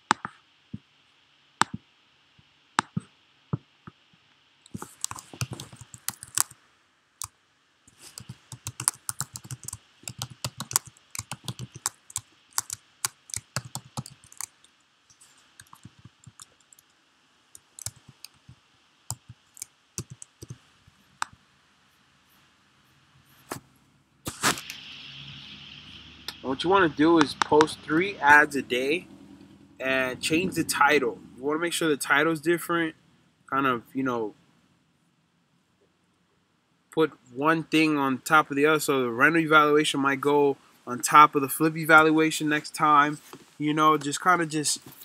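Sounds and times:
typing on computer keyboard: 4.8 - 6.5, 8.0 - 16.8, 17.6 - 20.6.

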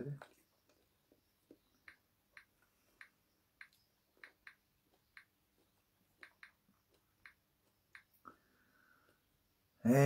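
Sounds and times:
finger tapping touchscreen: 1.5 - 5.4, 6.2 - 8.1.

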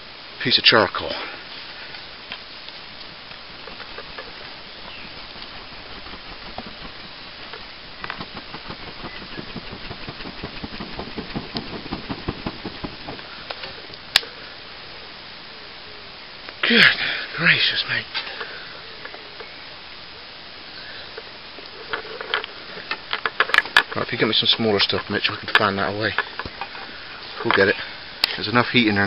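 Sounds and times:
twig fire hissing and crackling: 0.0 - 29.0
sharp snap of burning wood: 2.0 - 14.4.

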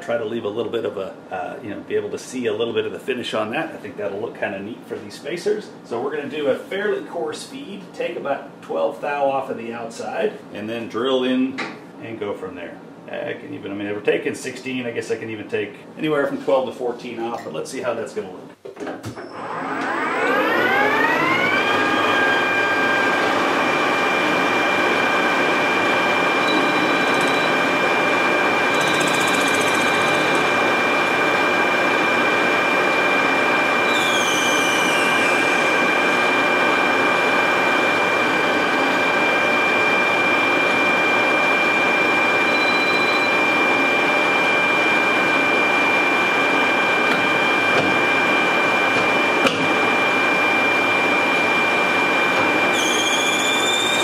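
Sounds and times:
metal lathe whining: 19.2 - 54.0
turning tool cutting metal: 26.2 - 31.2, 33.9 - 36.0, 52.7 - 54.0.

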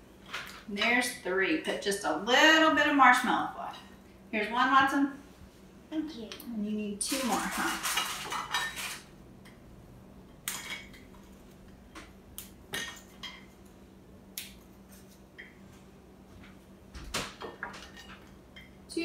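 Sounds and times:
knife and dishes clinking: 7.2 - 9.1.

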